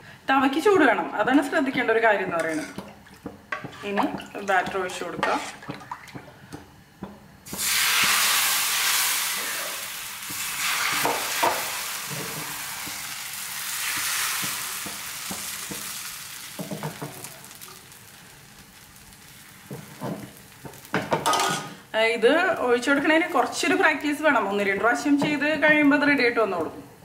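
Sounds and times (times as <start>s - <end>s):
batter sizzling on a hot pan: 7.4s - 21.9s.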